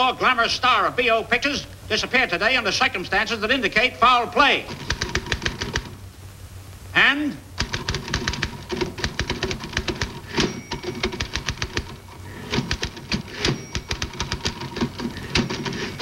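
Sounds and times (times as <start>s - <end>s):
typewriter keys clattering: 4.7s - 5.9s, 7.6s - 16.0s.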